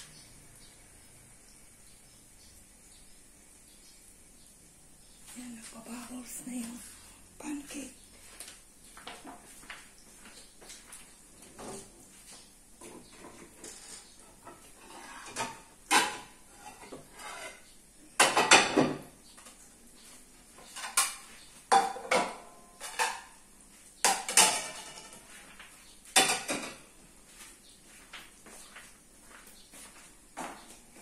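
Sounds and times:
metal utensils clinking and clattering: 0:13.1 - 0:19.6, 0:20.6 - 0:23.4, 0:24.1 - 0:26.9.

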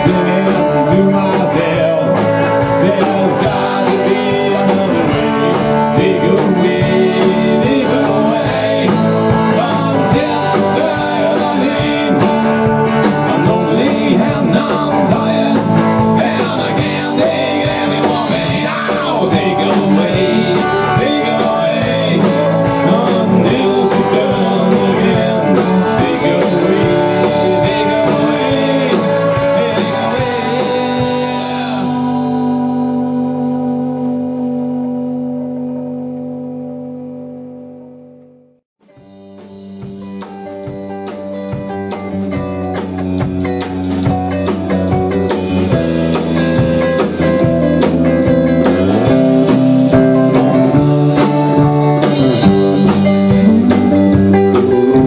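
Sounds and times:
drum kit: 0:00.0 - 0:35.8, 0:38.8 - 0:55.0
bass guitar: 0:00.0 - 0:55.0
electric guitars: 0:00.0 - 0:55.0
held guitar chord ringing: 0:49.0 - 0:55.0.

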